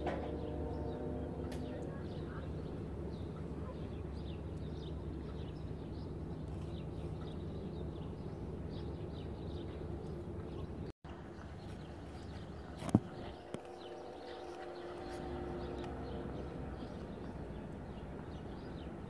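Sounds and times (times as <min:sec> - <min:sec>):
distant locomotive horn: 0:00.0 - 0:06.1, 0:12.3 - 0:19.0
low outdoor rumble: 0:00.0 - 0:19.0
small birds chirping: 0:01.6 - 0:19.0.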